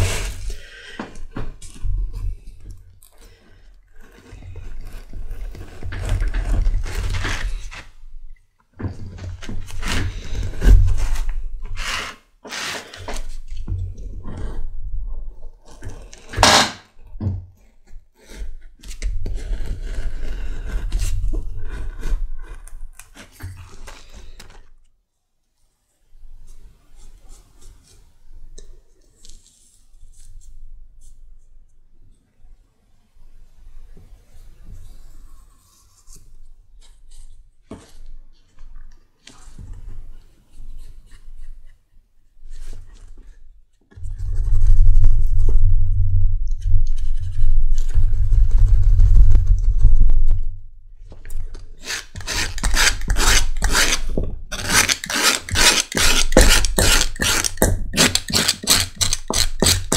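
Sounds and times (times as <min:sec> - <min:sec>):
knife scraping through leather: 0:00.0 - 0:00.6, 0:09.5 - 0:13.5, 0:18.2 - 0:24.5, 0:51.8 - 0:59.9
faint handling sounds: 0:17.5 - 0:32.3.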